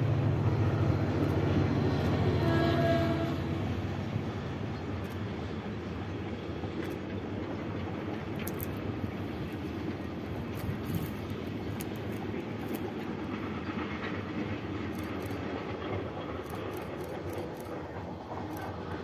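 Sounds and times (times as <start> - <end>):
freight train rolling: 0.0 - 19.0
faint clicks: 8.4 - 8.9.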